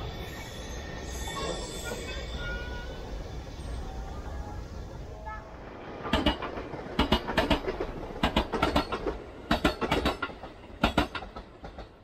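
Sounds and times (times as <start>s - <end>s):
low train rumble: 0.0s - 12.0s
train wheels clicking over rail joints: 5.9s - 12.0s.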